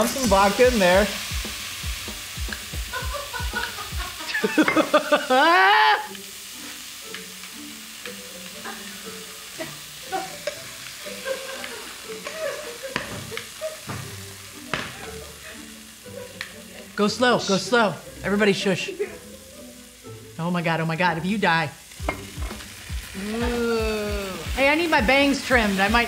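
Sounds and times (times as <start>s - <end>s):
liquid sizzling in a hot pan: 0.0s - 26.0s
soft music melody: 0.0s - 26.0s
utensil clinking against pan: 4.6s - 4.9s.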